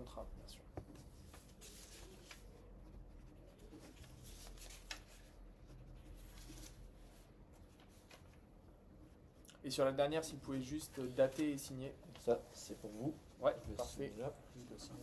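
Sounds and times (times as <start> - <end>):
paper pages rustling: 0.9 - 2.8, 3.5 - 5.4, 6.0 - 8.4.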